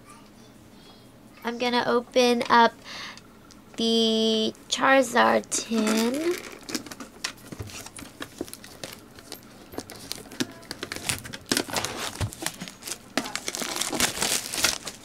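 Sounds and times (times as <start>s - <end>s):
plastic wrap crinkling and tearing: 5.8s - 7.0s, 7.7s - 15.0s.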